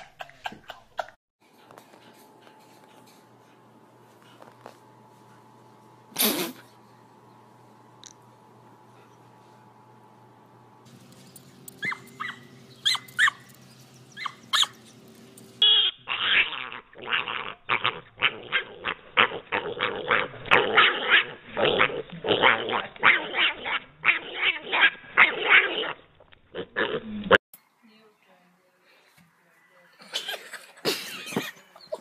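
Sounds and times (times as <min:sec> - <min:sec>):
dog barking rapidly: 0:14.2 - 0:14.8.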